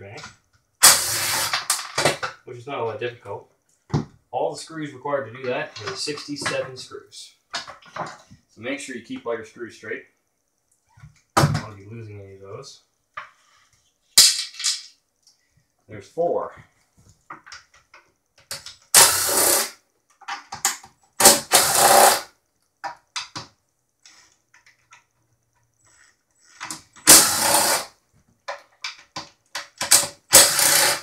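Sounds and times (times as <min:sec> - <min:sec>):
impact driver bursts: 0:00.8 - 0:01.7, 0:18.9 - 0:19.8, 0:21.2 - 0:22.3, 0:27.0 - 0:27.9, 0:29.8 - 0:31.0
small clicks and knocks: 0:17.0 - 0:18.9, 0:28.2 - 0:30.1.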